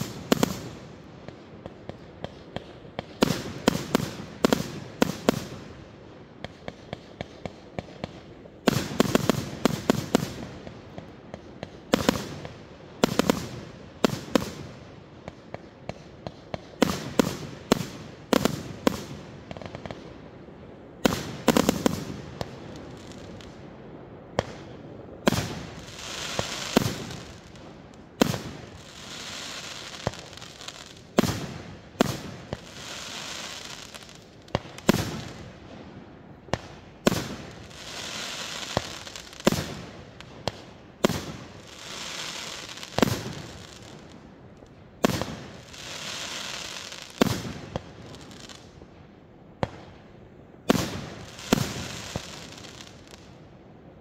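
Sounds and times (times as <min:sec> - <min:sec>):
firework bangs: 0:00.0 - 0:05.7, 0:06.4 - 0:14.7, 0:24.3 - 0:35.9, 0:45.0 - 0:48.6, 0:50.6 - 0:53.2
fireworks hissing and crackling: 0:00.0 - 0:49.0, 0:49.6 - 0:53.4.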